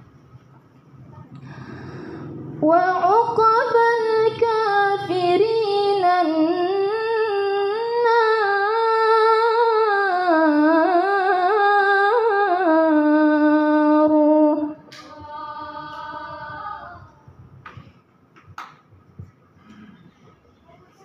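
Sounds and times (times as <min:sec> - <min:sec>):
woman reciting melodically into microphone: 0:01.1 - 0:17.6.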